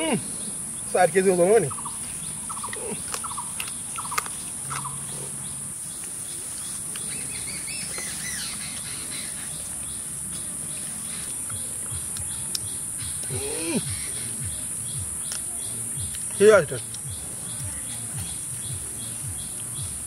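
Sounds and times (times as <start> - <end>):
insects droning in grass: 0.0 - 20.0
clicks of eating: 2.5 - 5.2, 6.8 - 7.3, 11.2 - 19.8.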